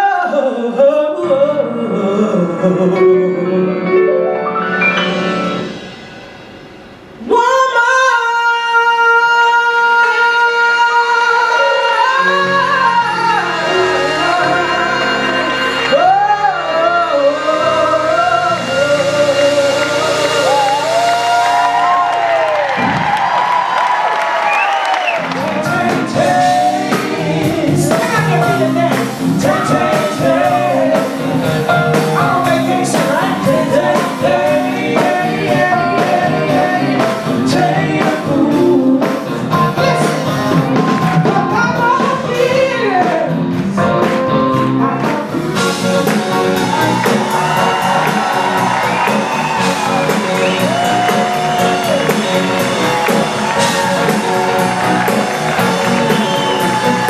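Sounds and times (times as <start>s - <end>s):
person singing: 0.0s - 5.3s, 7.2s - 22.3s, 25.1s - 57.0s
drums: 0.0s - 57.0s
electric guitars: 24.7s - 57.0s.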